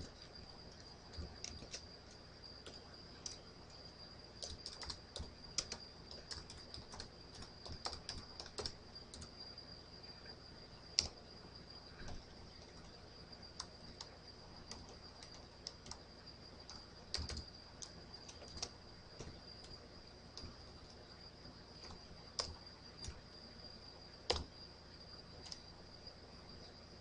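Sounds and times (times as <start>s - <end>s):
keyboard keys clicking: 0.0s - 3.4s, 4.4s - 9.3s, 16.7s - 19.7s, 21.8s - 23.2s
faint high-pitched whine: 0.0s - 27.0s.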